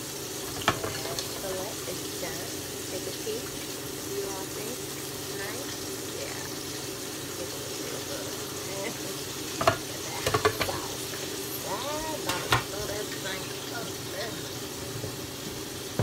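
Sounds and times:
hot oil sizzling in a frying pan: 0:00.0 - 0:16.0
metal tongs clattering against pan: 0:09.6 - 0:11.0, 0:11.7 - 0:12.9.

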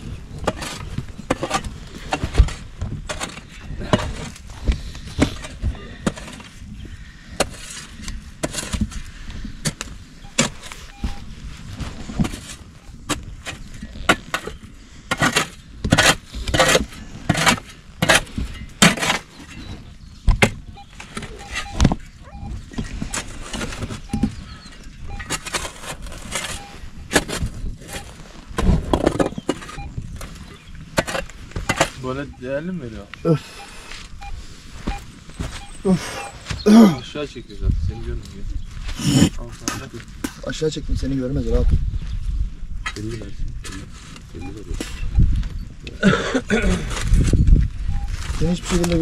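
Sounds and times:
digging tool striking soil and stones: 0:00.0 - 0:06.6, 0:07.3 - 0:09.0, 0:09.6 - 0:11.3, 0:12.1 - 0:19.6, 0:20.3 - 0:32.2.

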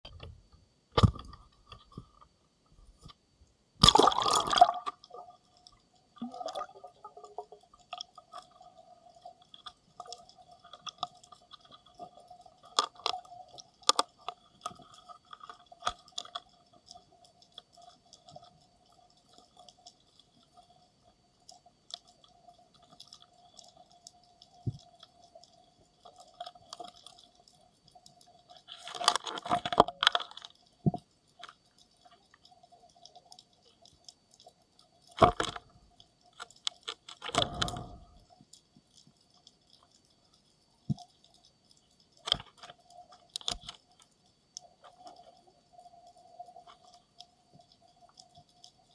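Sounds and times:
underwater clicks and ticks: 0:00.0 - 0:48.9
camera splashing into water: 0:03.8 - 0:05.0.

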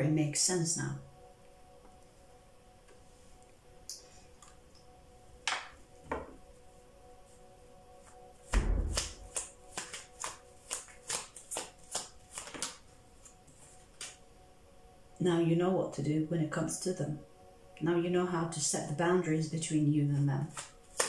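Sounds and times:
thump: 0:08.5 - 0:09.1
tarot cards being shuffled: 0:08.8 - 0:14.2, 0:20.2 - 0:21.0.

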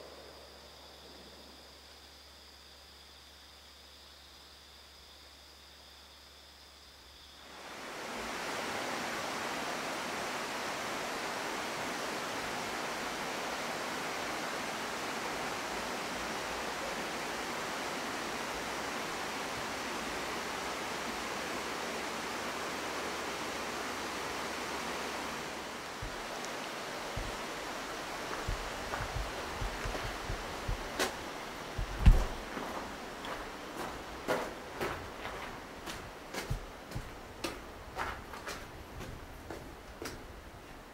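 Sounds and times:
river rushing: 0:07.4 - 0:37.9.

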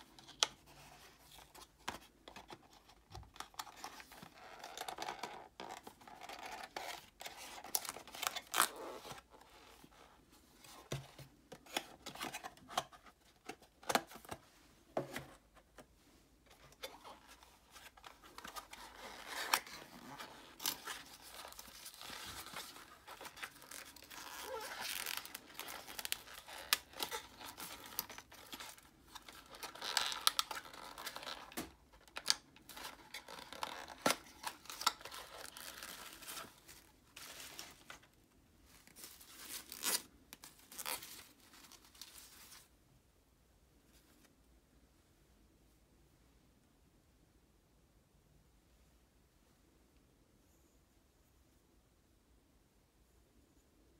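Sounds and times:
paper tearing and crinkling: 0:18.4 - 0:28.0.

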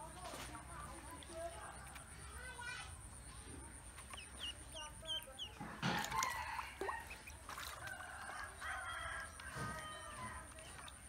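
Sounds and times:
ducklings peeping: 0:03.3 - 0:11.0.

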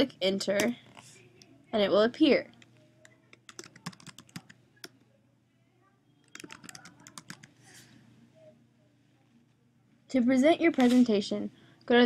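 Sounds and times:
computer keyboard typing: 0:02.5 - 0:05.0, 0:06.2 - 0:07.6.

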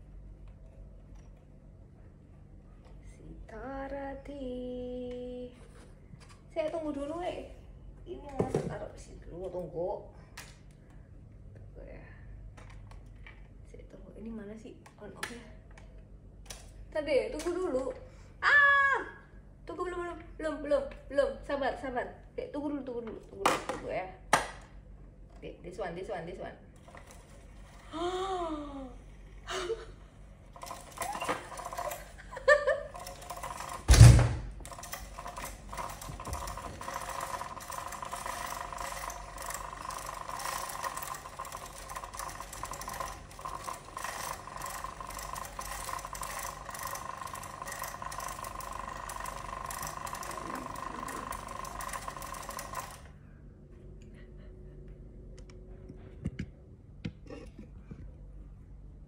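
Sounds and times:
small motor whirring and rattling: 0:26.8 - 0:53.1.

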